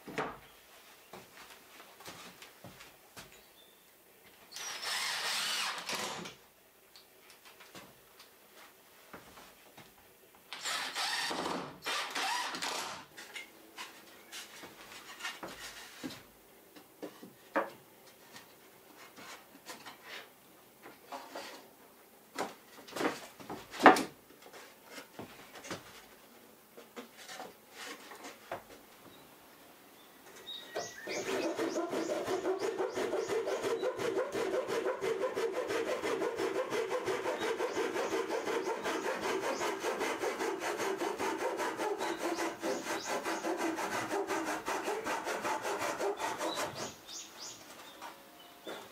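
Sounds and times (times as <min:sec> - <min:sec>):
cordless drill driving screws: 0:04.6 - 0:06.3, 0:10.6 - 0:13.0.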